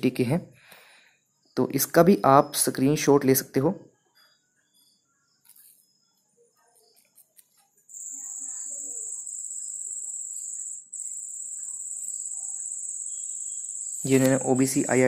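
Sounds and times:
high-pitched insect trill: 0:04.0 - 0:15.0.

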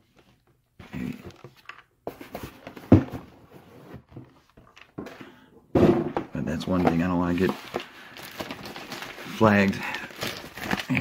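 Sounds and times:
bubble wrap rustling: 0:06.6 - 0:11.0.

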